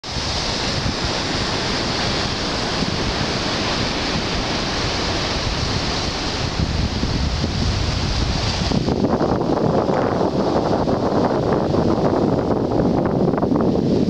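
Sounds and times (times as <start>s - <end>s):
surf breaking on rocks: 0.0s - 14.0s
wind gusting across microphone: 0.0s - 14.0s.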